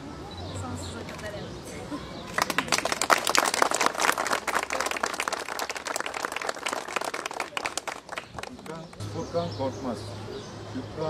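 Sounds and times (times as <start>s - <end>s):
crowd clapping: 2.3s - 9.0s.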